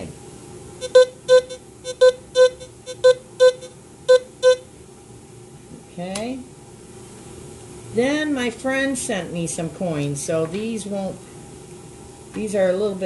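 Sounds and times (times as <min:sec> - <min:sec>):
metal detector short beeps: 0:00.8 - 0:04.6.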